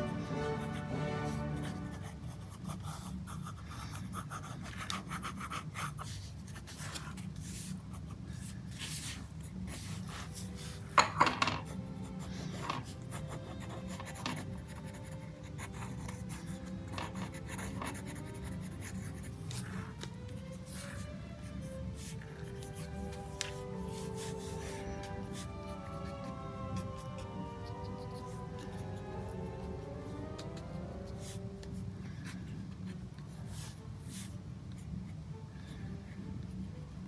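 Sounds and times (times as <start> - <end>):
pen scratching on paper: 0.0 - 10.9, 11.6 - 32.4.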